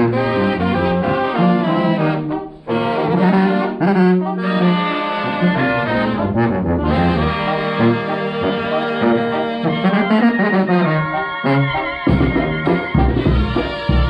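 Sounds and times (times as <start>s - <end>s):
marching brass band playing: 0.0s - 14.0s.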